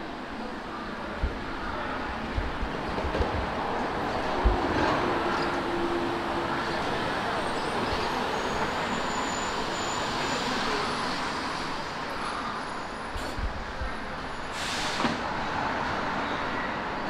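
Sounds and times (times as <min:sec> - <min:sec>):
city street traffic: 0:00.0 - 0:17.0
bus air brakes hissing: 0:14.4 - 0:15.4.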